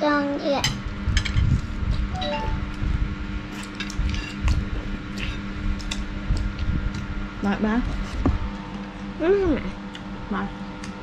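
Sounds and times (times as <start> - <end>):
child's voice: 0.0 - 0.8
steady low hum: 0.0 - 11.0.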